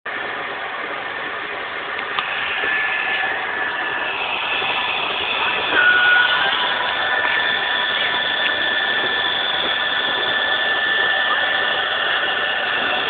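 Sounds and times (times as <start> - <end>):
carpet cleaning machine running: 2.0 - 13.0.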